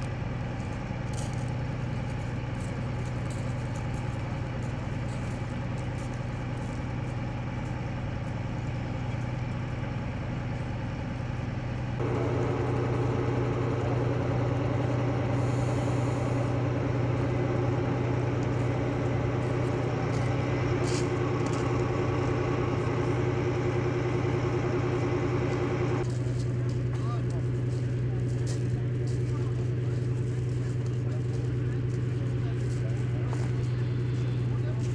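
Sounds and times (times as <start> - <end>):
engine idling: 0.0 - 34.9
higher steady drone: 12.0 - 26.0.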